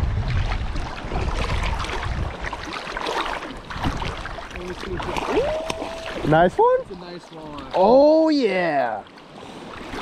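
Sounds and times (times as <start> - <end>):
wind rumbling on microphone: 0.0 - 2.8
small waves lapping and splashing: 0.0 - 10.0.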